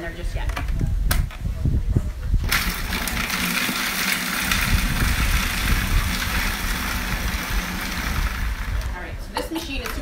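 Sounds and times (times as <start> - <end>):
food processor motor chopping: 2.5 - 8.9.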